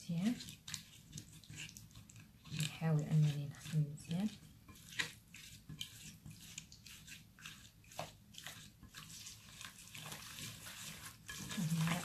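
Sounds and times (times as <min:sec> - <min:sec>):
wet squelches of kneading: 0:00.0 - 0:12.0.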